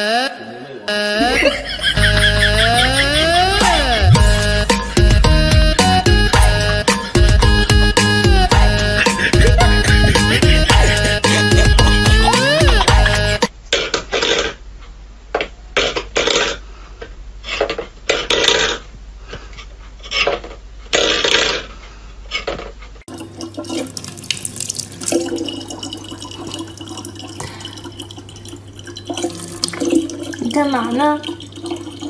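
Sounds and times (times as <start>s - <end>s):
tap running water into sink: 23.1s - 32.0s.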